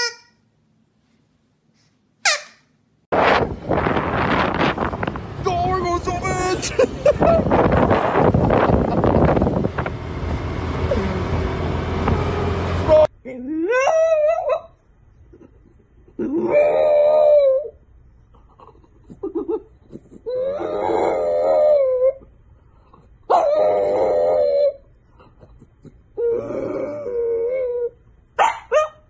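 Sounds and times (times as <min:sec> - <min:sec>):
wind rushing: 0:03.1 - 0:12.3
street noise: 0:03.1 - 0:13.1
dog whimpering: 0:15.3 - 0:17.7, 0:18.5 - 0:22.3, 0:23.3 - 0:28.0
dog howling: 0:16.2 - 0:17.8, 0:20.3 - 0:22.2, 0:23.3 - 0:24.8, 0:26.2 - 0:28.0.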